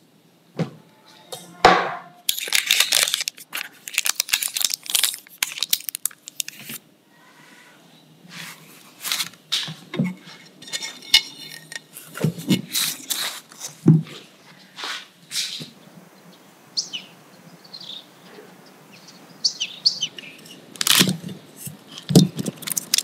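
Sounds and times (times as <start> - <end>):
baking paper tearing: 2.3 - 6.8, 8.4 - 9.4, 11.9 - 13.8, 20.8 - 23.0
paper rustling: 2.3 - 6.8, 8.4 - 10.9, 11.9 - 13.9, 20.8 - 23.0.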